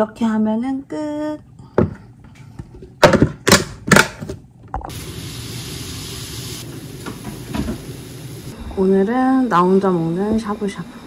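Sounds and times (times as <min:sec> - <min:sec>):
water boiling in a pot: 0:04.9 - 0:10.8.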